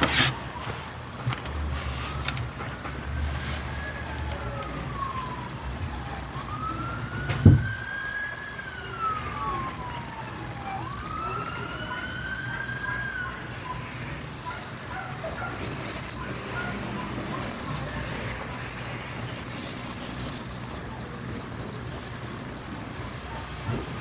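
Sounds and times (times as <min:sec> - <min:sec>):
emergency siren wailing: 0:00.0 - 0:24.0
low road noise rumble: 0:00.0 - 0:24.0
thump: 0:07.3 - 0:07.7.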